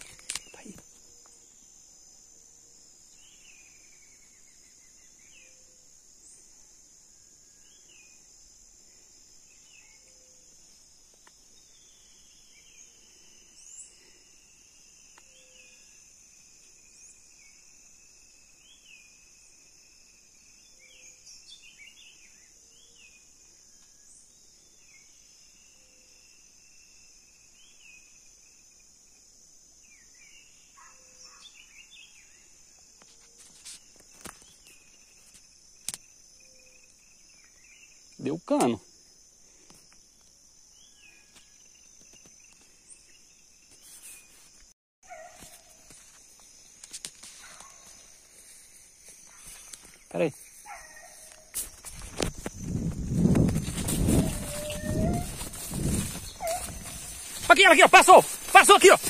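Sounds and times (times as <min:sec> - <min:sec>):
insect drone: 0:00.0 - 0:59.0
bird chirps: 0:53.6 - 0:59.0.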